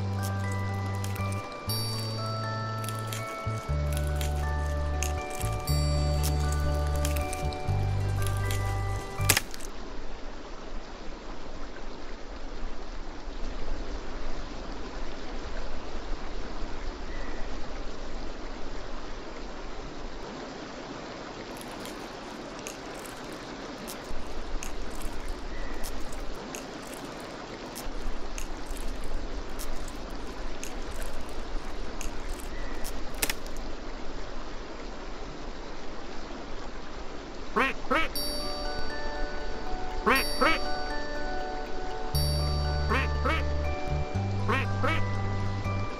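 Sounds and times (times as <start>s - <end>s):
music: 0.0s - 9.4s, 38.2s - 45.9s
river water rushing: 0.0s - 16.7s, 17.6s - 45.9s.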